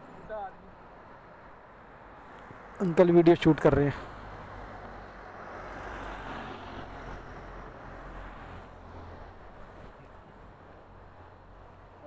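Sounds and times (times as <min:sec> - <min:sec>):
steady low traffic hum: 0:00.0 - 0:12.0
vehicle passing: 0:02.8 - 0:10.6.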